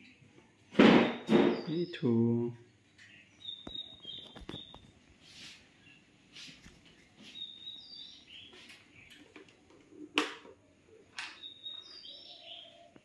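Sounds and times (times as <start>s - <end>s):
parakeet chirping: 3.1s - 4.9s.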